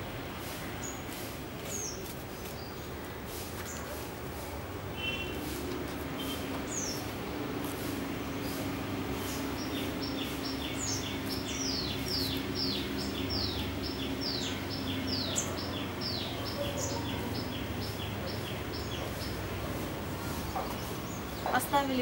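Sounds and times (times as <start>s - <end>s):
bird chirping rapidly: 6.2s - 7.1s, 7.8s - 22.0s.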